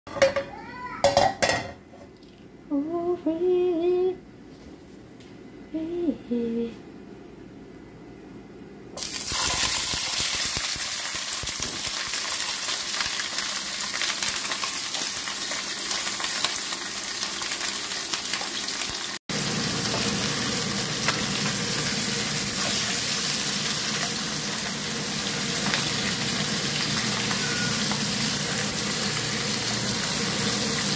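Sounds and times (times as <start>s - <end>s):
fish sizzling in hot oil: 9.0s - 30.9s.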